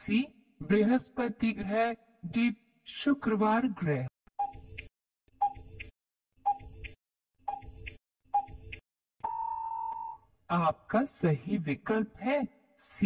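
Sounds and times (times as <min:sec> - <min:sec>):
timer ticks: 0:04.4 - 0:09.5
steady beep: 0:08.4 - 0:10.2.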